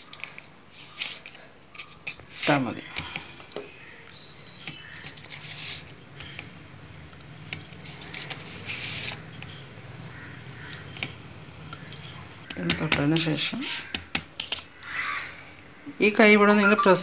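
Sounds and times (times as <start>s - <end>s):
rolling pin swishing on dough: 4.6s - 9.8s.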